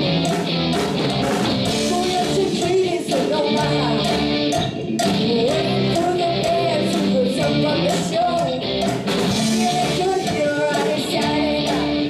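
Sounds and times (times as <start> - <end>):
rock band playing: 0.0 - 12.0
girl singing: 1.8 - 4.2, 5.0 - 8.7, 9.5 - 12.0.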